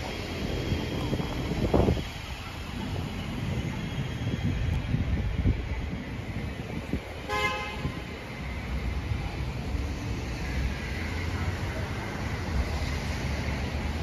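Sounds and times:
low rumble of city traffic: 0.0s - 14.0s
short car horn toot: 7.3s - 7.9s.

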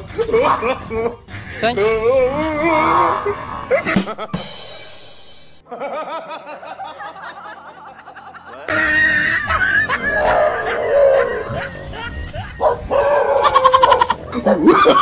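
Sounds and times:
music: 0.0s - 15.0s
person laughing: 3.7s - 4.5s, 8.0s - 12.9s, 13.6s - 15.0s.

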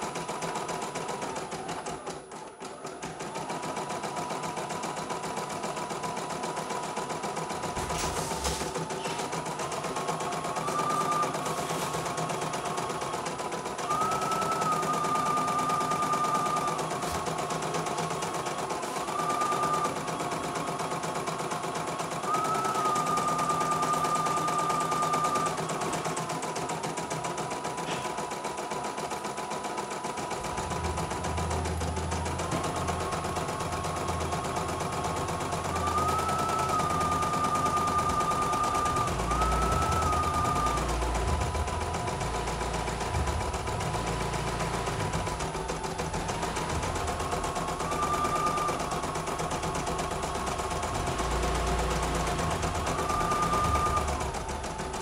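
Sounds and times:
motor whine: 22.2s - 25.6s, 30.3s - 55.0s.

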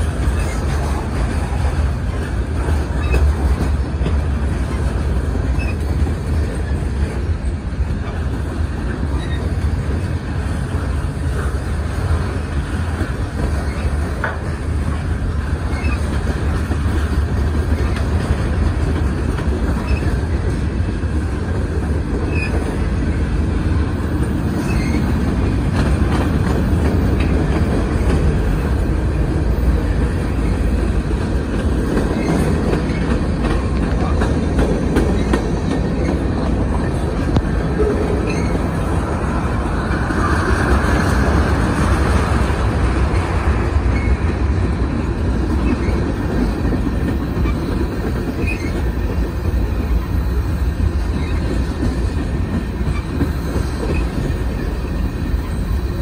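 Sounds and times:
train wheels rumbling on rail: 0.0s - 56.0s
wheels squealing: 4.5s - 7.6s, 9.1s - 10.0s, 15.6s - 16.3s, 22.2s - 22.9s, 24.5s - 25.3s, 31.8s - 39.0s, 47.3s - 49.1s.

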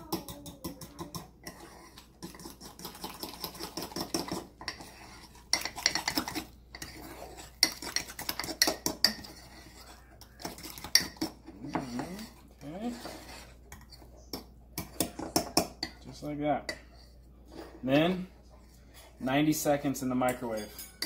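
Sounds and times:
metal spoon scraping and clinking in mug: 0.2s - 14.0s, 20.3s - 21.0s.

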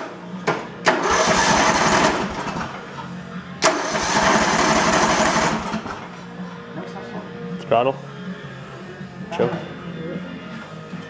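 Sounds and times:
mower engine cranking: 0.9s - 2.8s, 3.6s - 6.1s.

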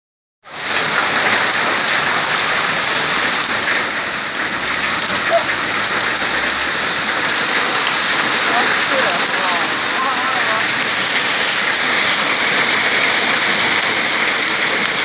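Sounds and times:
hail and heavy rain pelting: 0.5s - 15.0s.

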